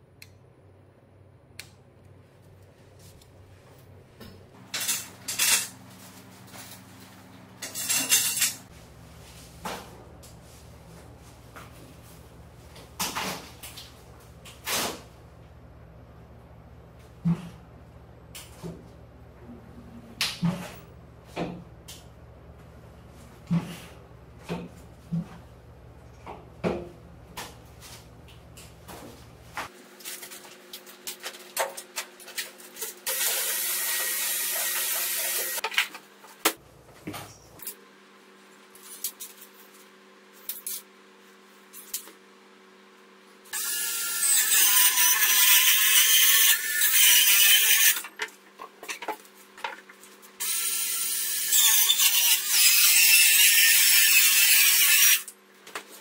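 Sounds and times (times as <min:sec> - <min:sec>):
circular saw cutting board: 0:33.1 - 0:35.6.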